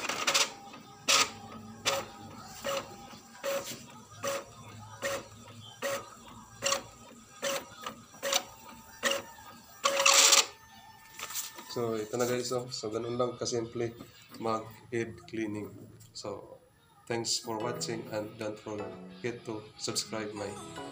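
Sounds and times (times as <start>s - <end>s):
inkjet printer carriage whirring: 0.0s - 14.9s.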